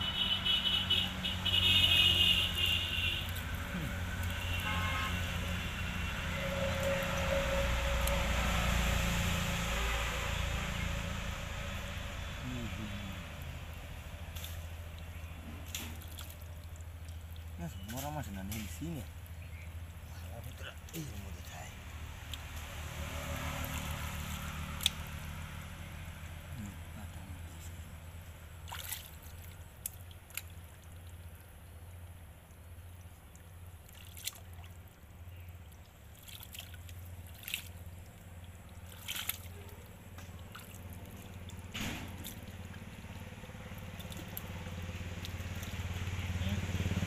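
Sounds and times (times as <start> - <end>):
hand splashing in muddy water: 15.6 - 17.9, 28.6 - 31.1, 33.7 - 34.9, 35.7 - 47.0.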